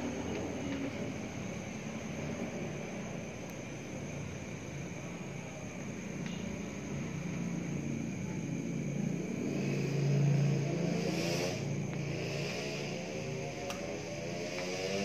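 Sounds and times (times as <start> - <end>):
passing vehicle engine: 6.9 - 15.0.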